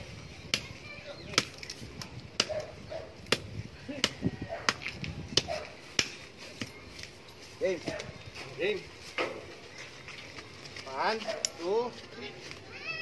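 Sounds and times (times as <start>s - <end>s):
machete chopping wood: 1.3s - 1.7s, 2.3s - 6.8s.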